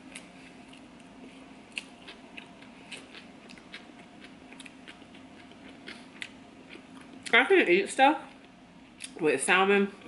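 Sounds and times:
close-up chewing: 0.0s - 7.4s.

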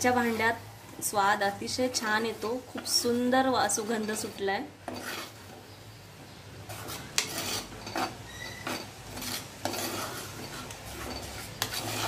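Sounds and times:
metal spoon scraping clay pot: 2.0s - 5.6s, 6.6s - 12.0s.

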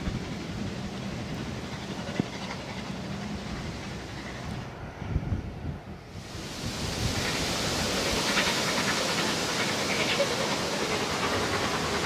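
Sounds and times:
steam hissing from locomotives: 0.0s - 12.0s.

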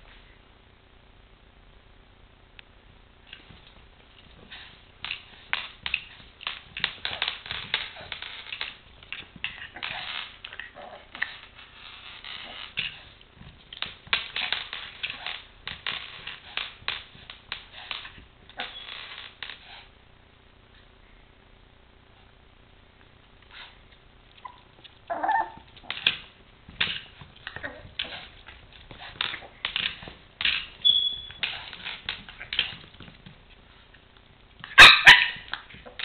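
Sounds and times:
dog claws clicking on tile: 3.3s - 19.8s, 24.4s - 33.4s
scraping on tile floor: 3.3s - 19.9s, 24.8s - 34.0s.

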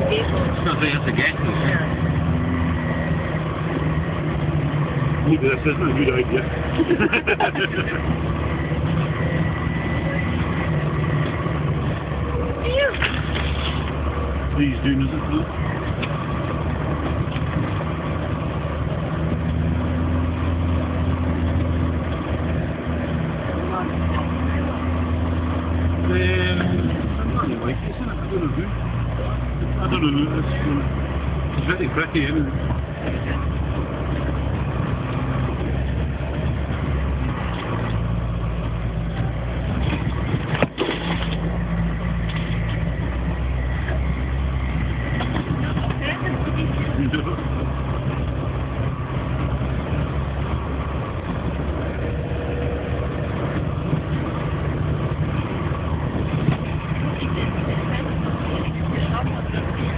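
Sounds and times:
car engine running: 0.0s - 59.9s.

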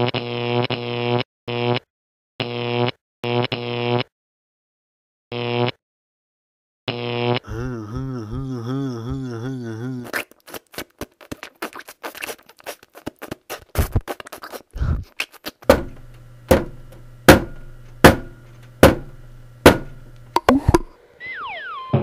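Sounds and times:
mouth clicks and smacks: 9.4s - 15.7s
loud knocks: 15.7s - 20.9s.

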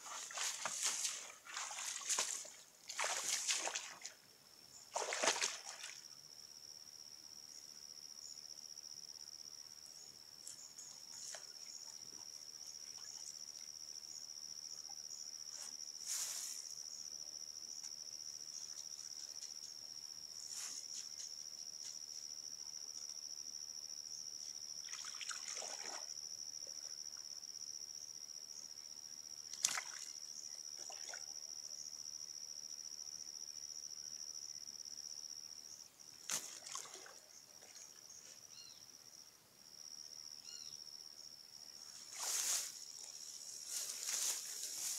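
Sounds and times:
water splashing: 0.0s - 4.2s, 4.9s - 6.0s, 24.9s - 26.1s, 29.6s - 30.2s, 36.3s - 37.8s
crickets trilling: 0.0s - 44.9s.

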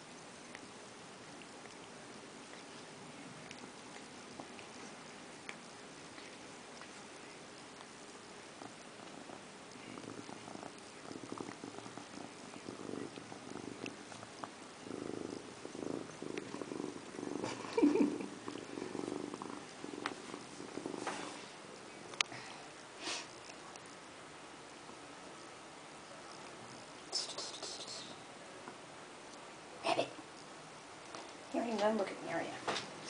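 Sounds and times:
cat purring: 0.0s - 24.0s
cat licking: 0.4s - 21.4s.

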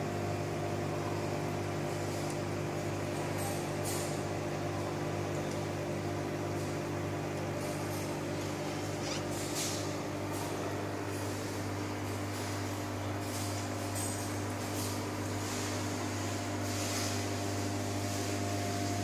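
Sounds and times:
low electrical hum: 0.0s - 19.0s.

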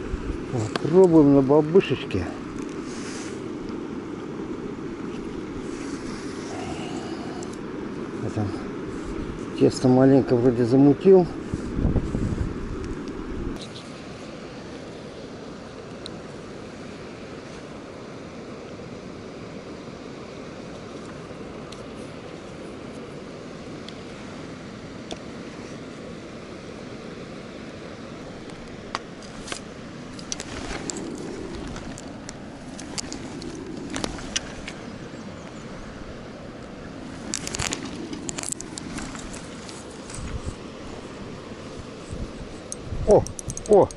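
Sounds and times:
wind rumble on microphone: 0.0s - 13.7s, 20.5s - 43.9s
grass and clothing rustling: 0.0s - 19.1s, 19.8s - 43.9s
river flowing: 0.0s - 43.9s
crackles: 28.4s - 34.8s, 36.6s - 40.5s.

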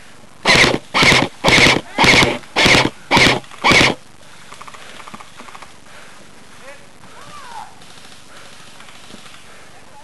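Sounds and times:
airsoft rifle bursts: 0.4s - 5.7s.

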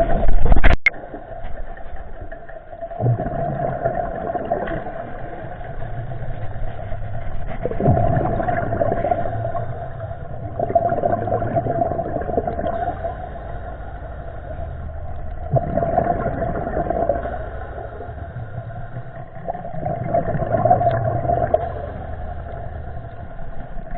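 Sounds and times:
engine drone underwater: 0.0s - 23.9s.

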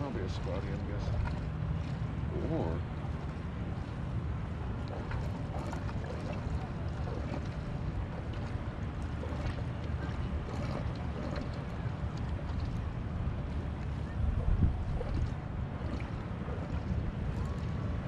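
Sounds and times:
wind rumble on microphone: 0.0s - 18.0s.

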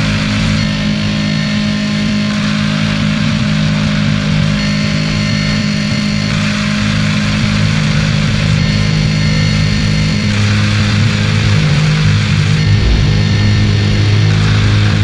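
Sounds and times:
low droning hum: 11.0s - 15.0s.

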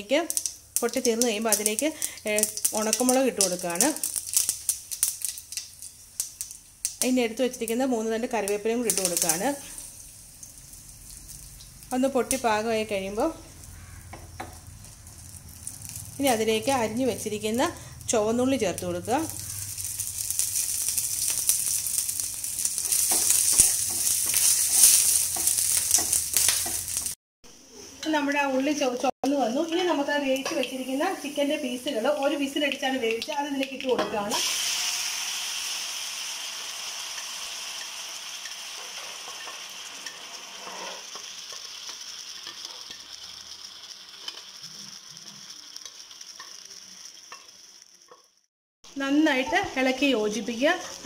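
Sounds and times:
shallots sizzling in hot oil: 0.0s - 51.0s
wooden spatula clicks and scrapes: 22.7s - 27.1s.

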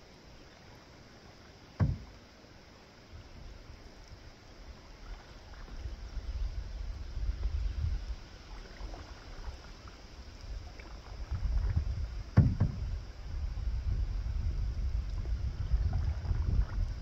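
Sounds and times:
faint water sounds: 0.0s - 17.0s
sharp double knock: 1.8s - 2.1s
wind rumble on microphone: 4.6s - 17.0s.

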